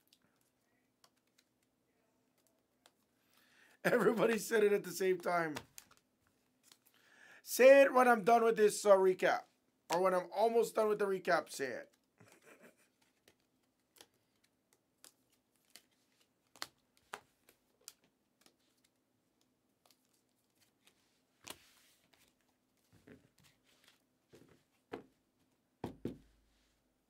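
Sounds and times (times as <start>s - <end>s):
plastic card sleeves clicking: 0.1s - 1.7s, 5.2s - 6.9s, 13.0s - 21.6s.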